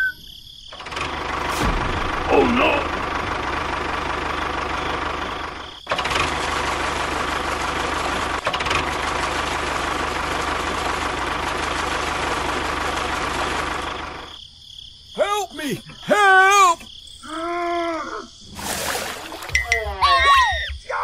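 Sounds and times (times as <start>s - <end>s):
tractor engine running: 0.7s - 14.4s.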